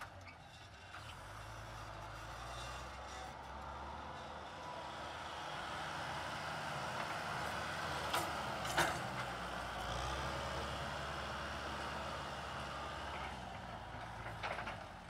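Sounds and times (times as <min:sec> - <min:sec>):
tractor diesel engine running: 0:00.7 - 0:15.0.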